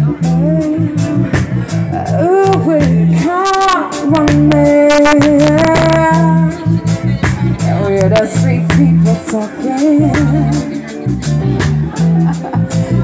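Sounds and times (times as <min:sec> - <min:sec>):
woman singing into a microphone: 0:00.0 - 0:11.1
reggae band playing: 0:00.0 - 0:13.0.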